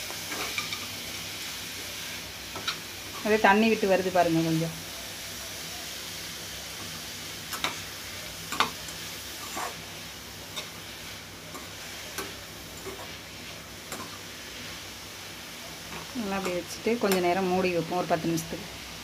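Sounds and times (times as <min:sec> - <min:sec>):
food sizzling in oil: 0:00.0 - 0:19.0
spoon scraping a metal pan: 0:09.4 - 0:09.9, 0:11.5 - 0:14.2.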